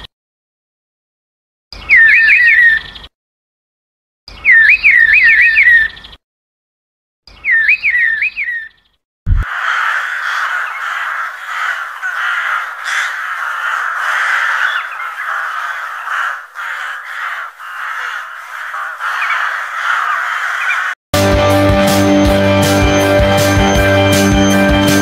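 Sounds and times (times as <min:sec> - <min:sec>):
crows cawing: 0:09.4 - 0:21.0.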